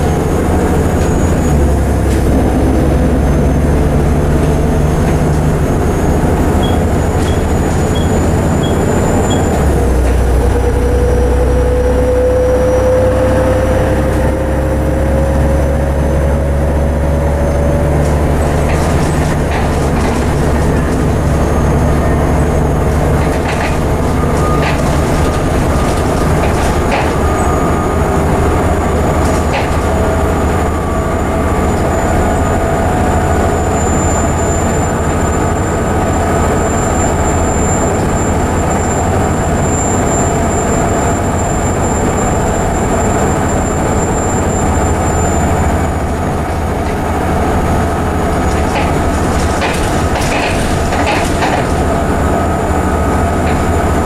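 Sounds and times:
bus diesel engine hum: 0.0 - 54.0
road noise: 0.0 - 54.0.

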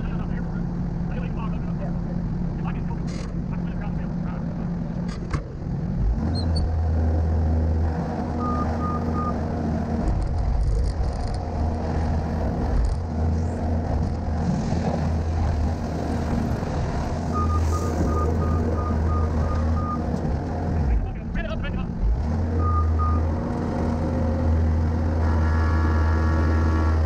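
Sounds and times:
diesel engine humming: 0.0 - 27.0
backup alarm beeping: 17.4 - 20.0.

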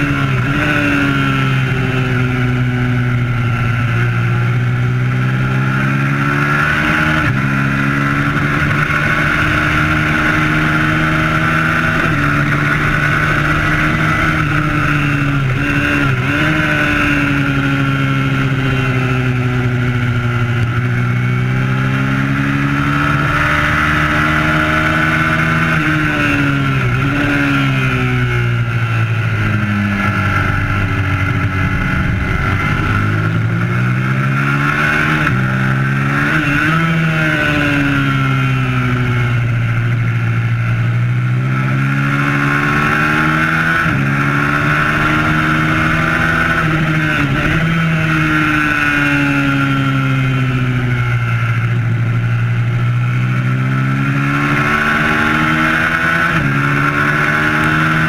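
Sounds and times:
motorcycle engine revving: 0.0 - 58.0
wind rush: 25.3 - 40.2.

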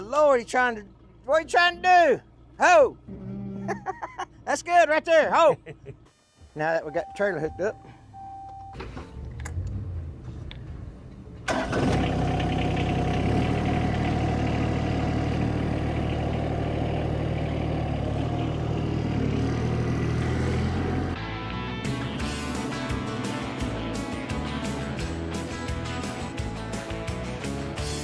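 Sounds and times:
engine starting and idling: 8.0 - 18.0.

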